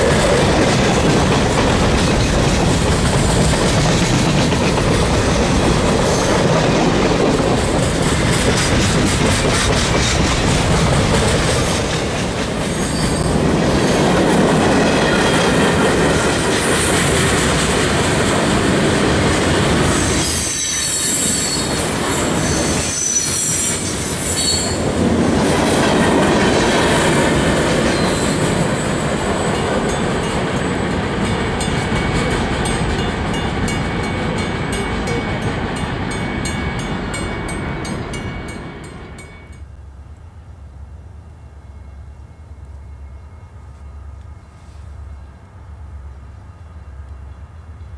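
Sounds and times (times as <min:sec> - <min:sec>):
freight cars rumbling and rattling: 0:00.0 - 0:19.9
high wheel squeal: 0:12.7 - 0:13.4, 0:20.0 - 0:24.9, 0:27.9 - 0:28.6.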